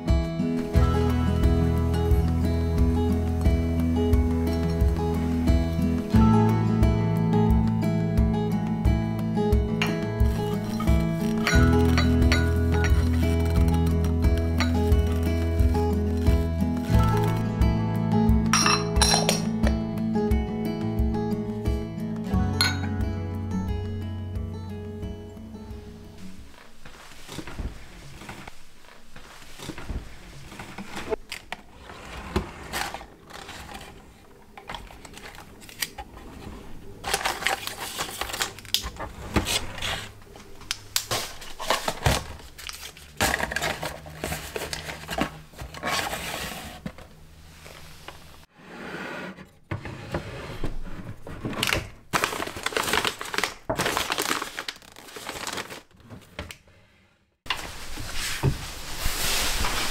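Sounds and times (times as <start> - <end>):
food packaging rustling: 10.2 - 17.4, 26.2 - 48.3, 51.3 - 56.0.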